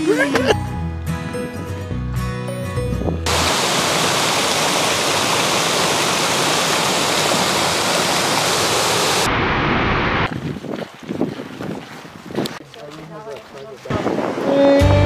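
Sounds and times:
music: 0.0s - 3.3s, 14.4s - 15.0s
stream and waterfall rushing: 3.3s - 9.3s.

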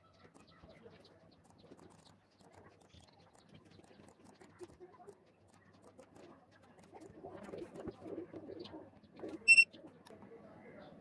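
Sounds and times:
card reader beep: 9.5s - 9.7s.

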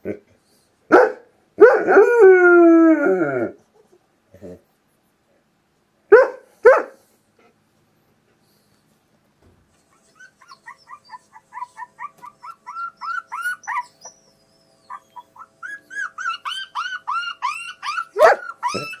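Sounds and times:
dog barking: 0.9s - 1.9s, 6.1s - 7.0s, 18.2s - 19.0s.

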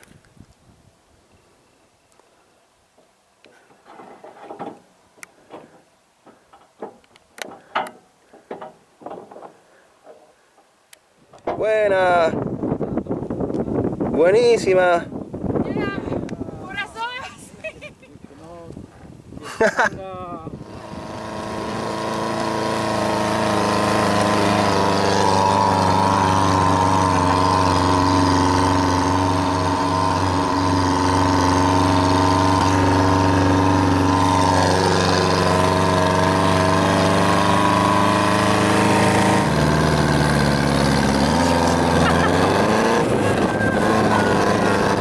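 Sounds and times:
engine running: 20.6s - 45.0s.

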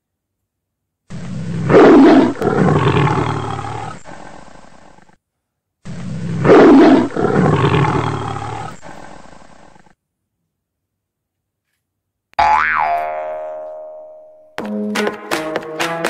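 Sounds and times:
big cat roar: 1.1s - 5.1s, 5.9s - 9.9s.

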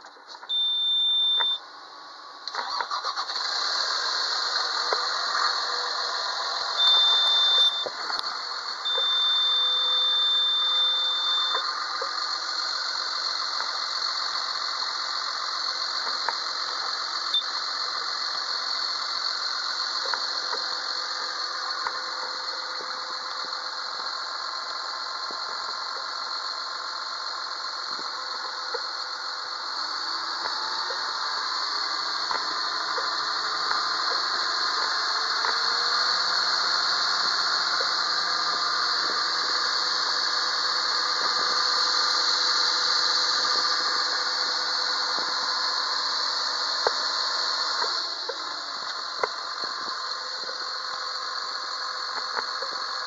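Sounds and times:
diesel engine cranking and running: 0.0s - 53.0s
high steady beep: 0.5s - 1.6s, 6.8s - 8.0s, 8.8s - 11.7s, 17.3s - 17.6s.

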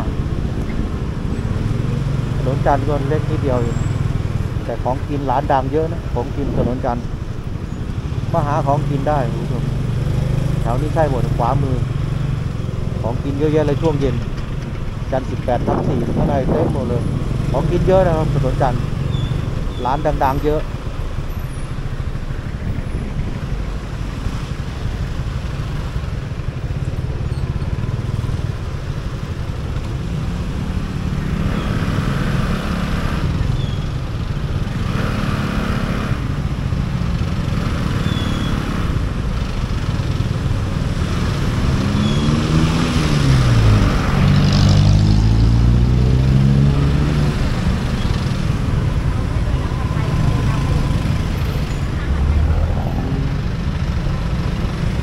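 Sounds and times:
motorcycle engine and road noise: 0.0s - 55.0s
engine slowing and accelerating: 34.1s - 55.0s.

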